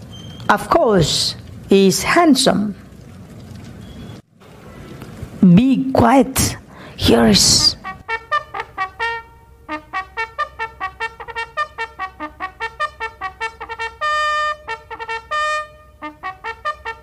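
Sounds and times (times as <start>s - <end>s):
trumpet fanfare: 7.8s - 17.0s.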